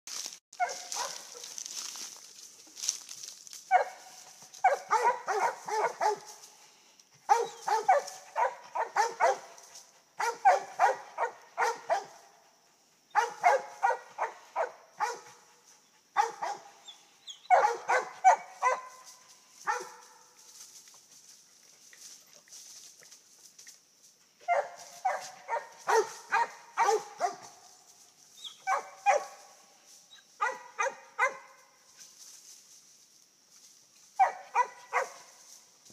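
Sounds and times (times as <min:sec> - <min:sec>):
dogs barking: 0:00.6 - 0:01.6, 0:03.7 - 0:06.4, 0:07.2 - 0:12.5, 0:13.1 - 0:16.8, 0:17.4 - 0:20.2, 0:24.4 - 0:27.6, 0:28.6 - 0:29.6, 0:30.4 - 0:31.6, 0:34.2 - 0:35.3.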